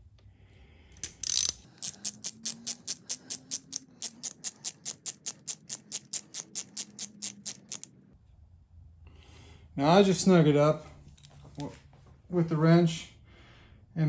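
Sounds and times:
hand ratchet clicking: 0:01.0 - 0:07.9.

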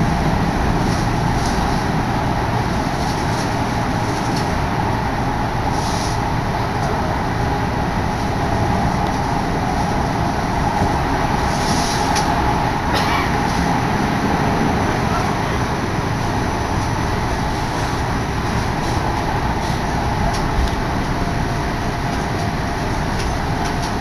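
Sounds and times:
train running rumble and hum: 0:00.0 - 0:24.0.

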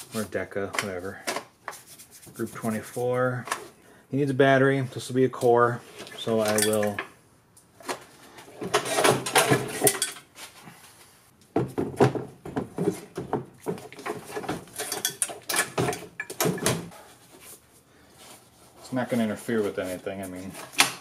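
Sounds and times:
metal tools clinking and clattering: 0:06.4 - 0:07.1, 0:08.6 - 0:10.3, 0:14.0 - 0:16.9.

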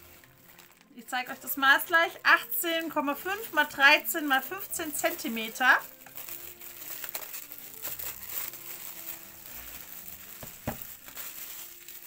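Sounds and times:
plastic film crinkling: 0:00.0 - 0:12.0.

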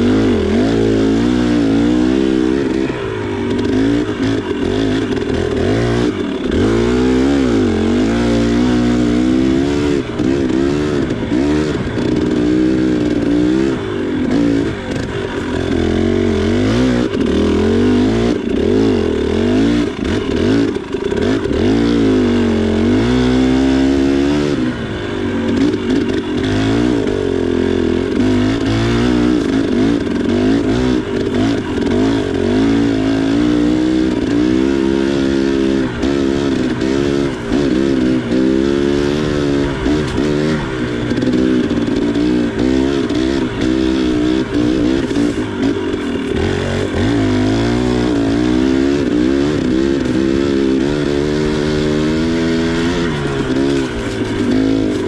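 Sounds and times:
two-stroke engine revving: 0:00.0 - 0:55.0.

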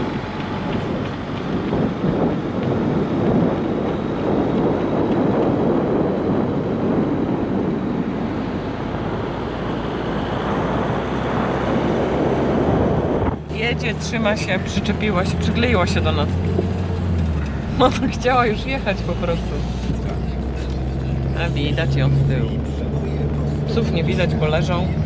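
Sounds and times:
car road noise: 0:00.0 - 0:25.0
wind rushing over microphone: 0:00.0 - 0:25.0.

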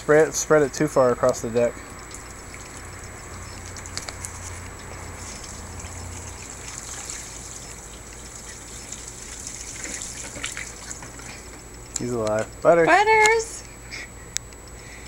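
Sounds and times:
water splashing onto wooden boards: 0:02.1 - 0:11.6.

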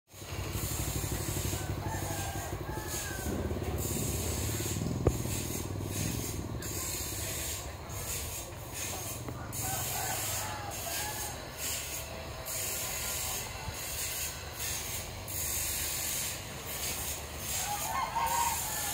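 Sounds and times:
low mechanical rumble: 0:00.2 - 0:09.5
constant high hiss: 0:00.2 - 0:18.9.

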